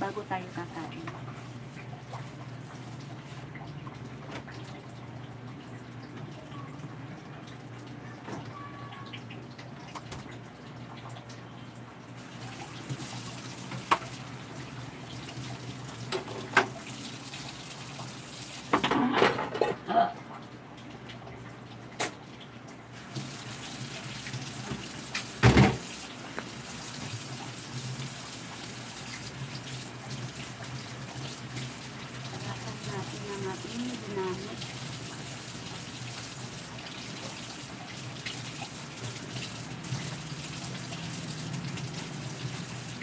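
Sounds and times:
tap water running into sink: 0.1s - 11.4s, 12.2s - 19.7s, 20.8s - 43.0s
dishes and utensils clattering: 18.8s - 19.9s.

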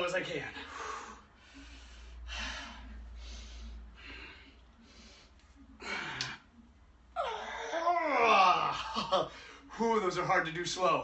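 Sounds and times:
man breathing hard: 0.5s - 6.4s.

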